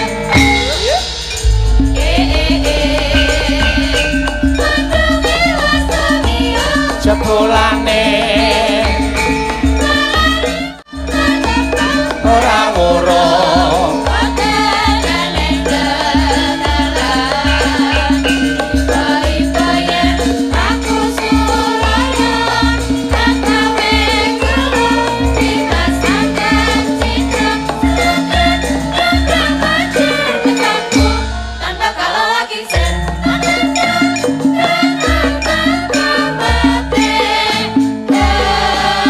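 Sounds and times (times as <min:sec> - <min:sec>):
metallophones and gongs: 0:00.0 - 0:39.0
low drum beat: 0:00.3 - 0:09.8
man and woman singing: 0:02.0 - 0:09.2, 0:09.8 - 0:39.0.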